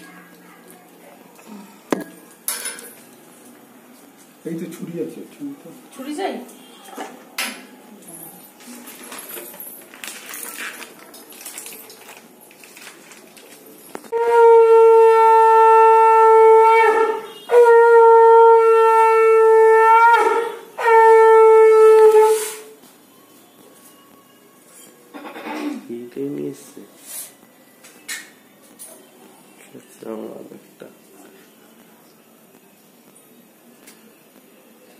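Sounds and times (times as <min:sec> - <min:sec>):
conch shell blasts: 0:14.1 - 0:22.8.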